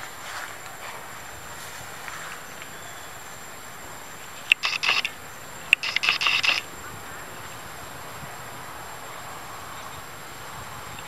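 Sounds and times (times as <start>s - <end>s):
camera shutter clicking: 4.5s - 5.2s, 5.8s - 6.6s.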